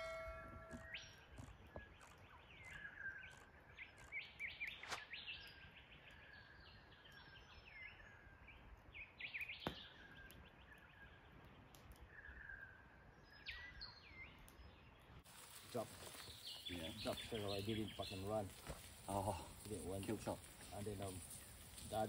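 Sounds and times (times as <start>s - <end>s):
birds chirping and calling: 0.0s - 22.0s.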